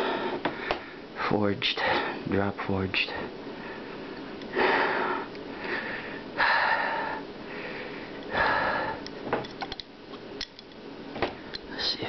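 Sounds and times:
man breathing heavily: 0.0s - 2.3s, 3.4s - 9.1s.

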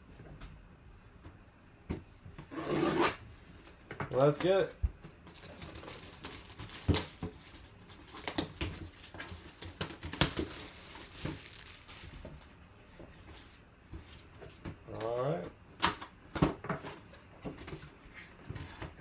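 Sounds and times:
plastic wrap tearing and crinkling: 5.2s - 12.4s
cardboard box handled: 9.9s - 12.4s.

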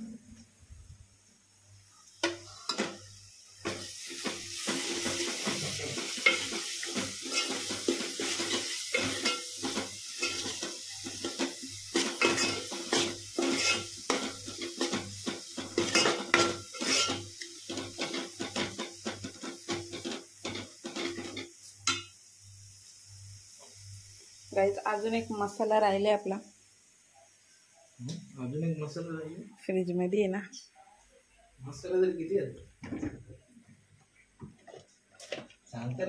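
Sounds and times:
onion sizzling: 1.6s - 29.1s
metal spoon scraping a pan: 3.6s - 22.0s
spoon clattering against pan: 4.2s - 22.1s.

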